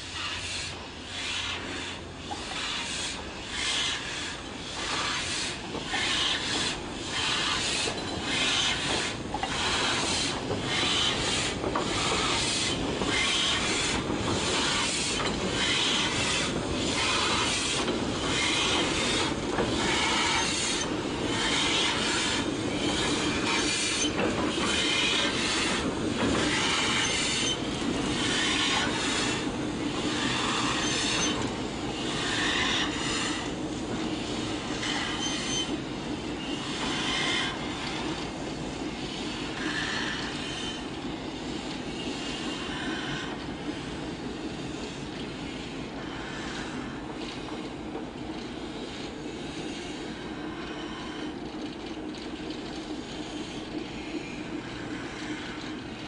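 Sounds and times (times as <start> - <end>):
locomotive wheels squealing: 4.8 - 33.4, 34.7 - 35.8, 39.6 - 41.0.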